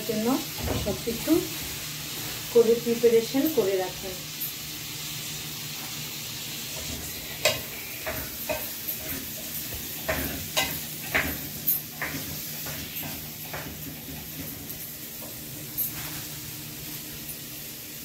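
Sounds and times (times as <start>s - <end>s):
chickpeas sizzling: 0.0s - 18.0s
spoon knocking and scraping pot: 6.8s - 14.6s.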